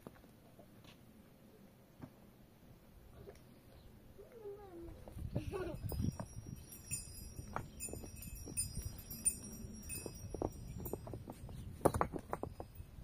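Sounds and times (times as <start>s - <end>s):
small metal bells tinkling: 5.4s - 13.0s.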